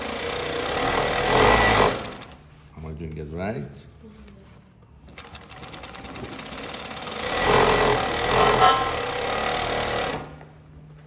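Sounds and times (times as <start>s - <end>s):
sewing machine stitching: 0.0s - 2.4s, 5.2s - 10.4s.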